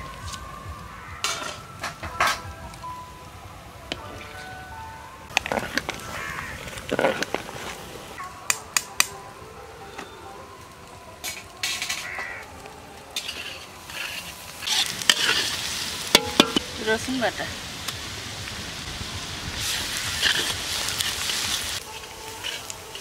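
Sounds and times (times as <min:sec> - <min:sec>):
metal ladle knocking on pots: 0:01.2 - 0:02.5, 0:16.1 - 0:16.8.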